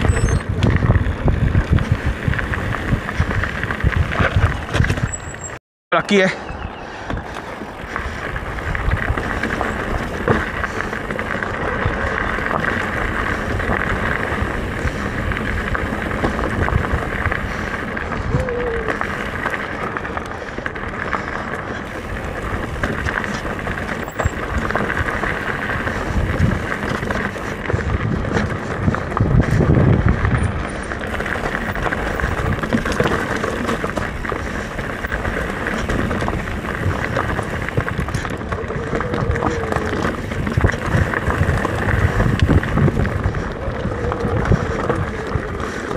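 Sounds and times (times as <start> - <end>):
bike thumps and rattles: 0.0 - 5.6, 7.1 - 20.0, 21.1 - 45.9
wind and tyre noise: 0.0 - 45.9.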